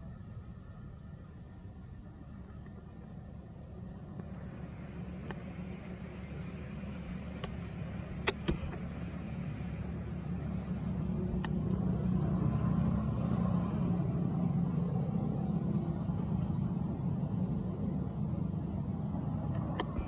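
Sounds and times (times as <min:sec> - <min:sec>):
vehicle engine rumbling: 0:00.0 - 0:20.0.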